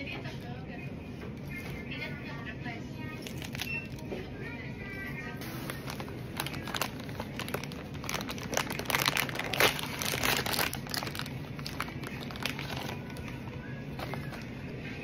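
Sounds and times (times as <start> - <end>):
packaging crinkling: 3.1 - 4.1, 5.4 - 14.7.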